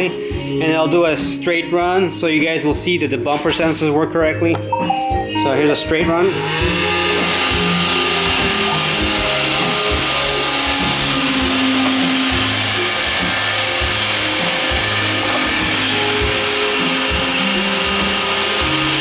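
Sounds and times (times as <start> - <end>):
robot vacuum whirring: 6.3 - 19.0.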